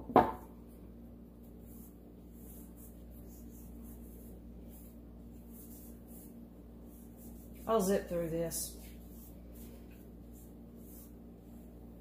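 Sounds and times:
canvas knocking on table: 0:00.0 - 0:00.4
steady low hum: 0:00.0 - 0:12.0.

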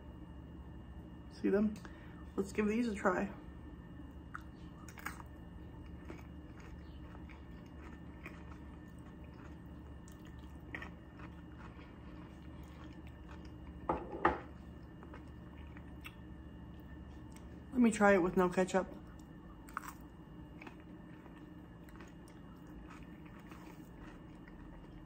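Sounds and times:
low room hum: 0:00.0 - 0:25.0
person chewing crunchy food: 0:04.1 - 0:17.7, 0:19.0 - 0:25.0.

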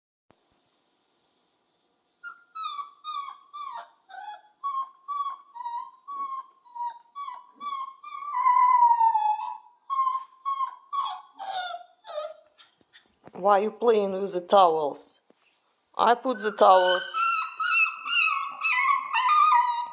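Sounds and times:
puppy howling: 0:02.6 - 0:12.4, 0:16.5 - 0:19.9.

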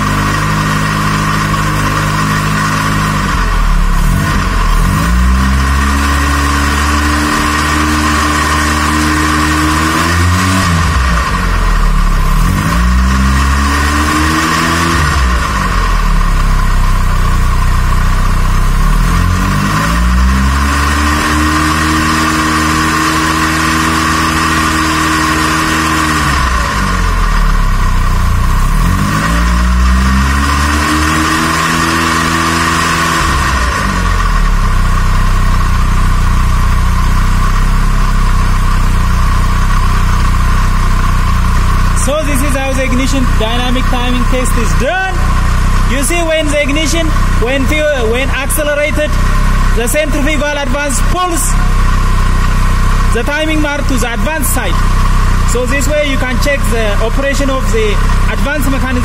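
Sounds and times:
engine revving: 0:00.0 - 0:59.0
steady high whine: 0:29.6 - 0:59.0.

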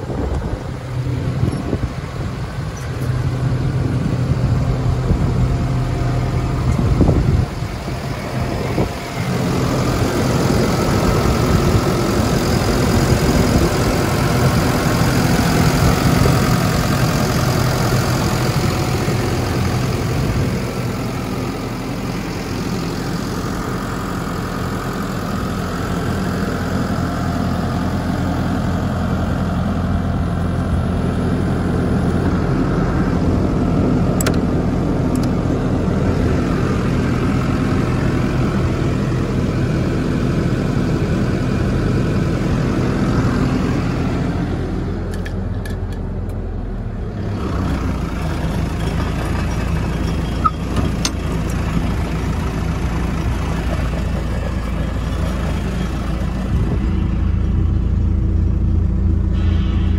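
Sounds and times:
street sweeper engine idling: 0:00.0 - 0:59.9.

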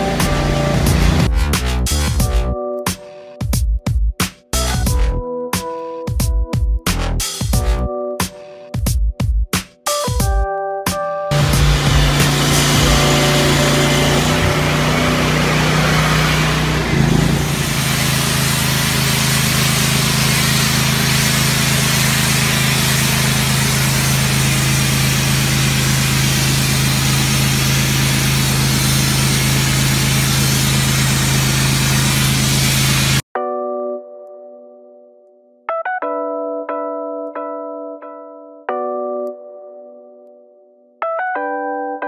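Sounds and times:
pressure washer engine running: 0:00.0 - 0:01.3, 0:11.3 - 0:33.2
high-pressure spray hissing: 0:11.3 - 0:33.2.

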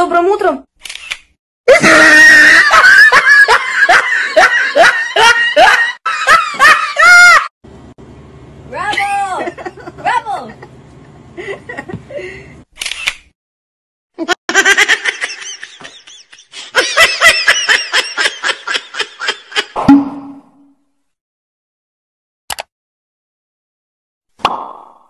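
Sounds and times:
rapid laughter: 0:01.7 - 0:07.5, 0:14.2 - 0:19.8.

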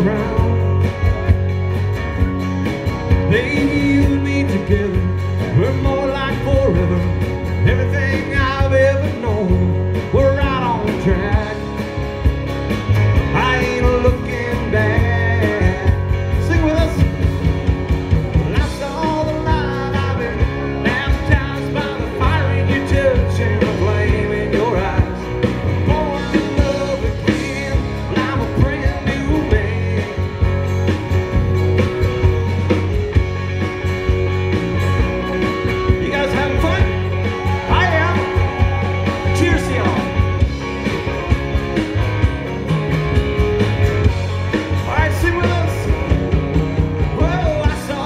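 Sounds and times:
acoustic guitars: 0:00.0 - 0:48.0
live band playing: 0:00.0 - 0:48.0.

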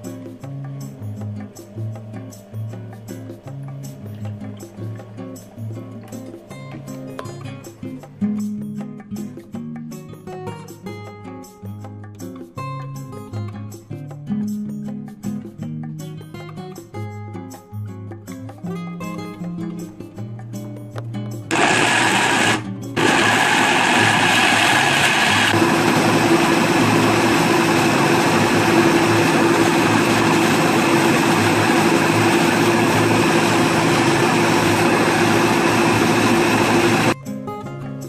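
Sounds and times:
blender motor running: 0:21.5 - 0:37.2.

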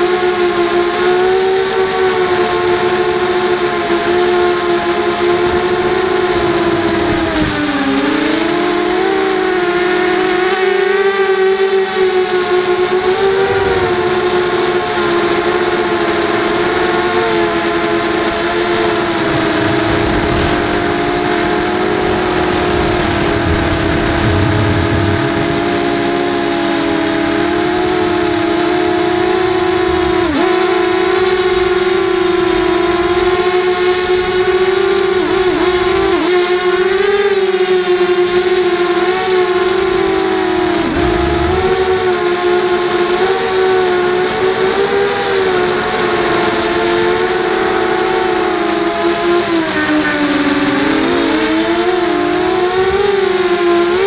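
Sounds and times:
drone motors whining: 0:11.4 - 0:36.2, 0:39.4 - 0:46.0.

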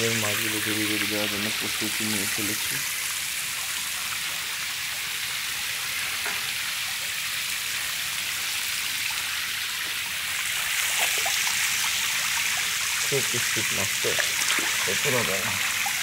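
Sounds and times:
water rushing and pattering: 0:00.0 - 0:16.0
light water splashes: 0:08.8 - 0:16.0.

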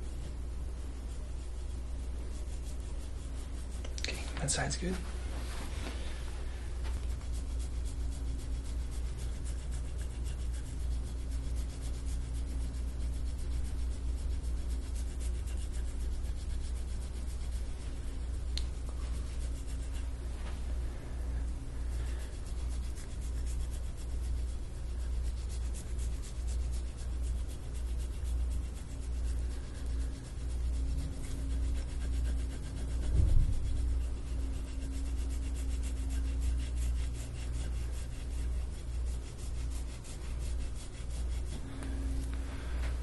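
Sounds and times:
metal tool rasping on skin: 0:22.0 - 0:41.6.

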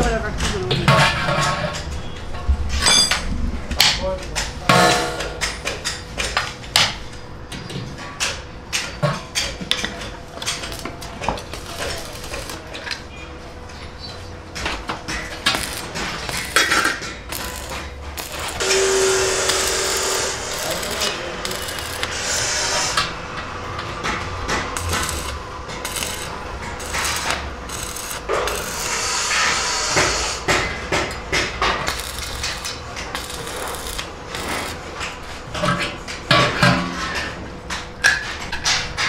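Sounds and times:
arc welder crackling hiss: 0:10.3 - 0:13.0, 0:14.8 - 0:23.6, 0:24.6 - 0:35.5.

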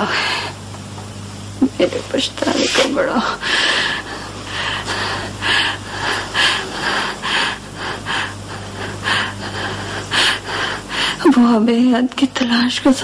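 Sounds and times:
steady low hum: 0:00.0 - 0:13.0
heavy rapid breathing: 0:02.5 - 0:11.4.

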